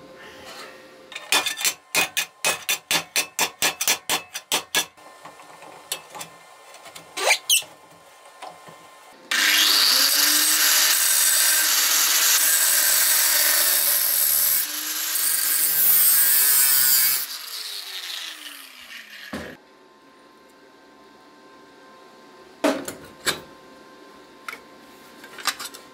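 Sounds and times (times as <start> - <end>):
angle grinder cutting steel: 9.3 - 19.6.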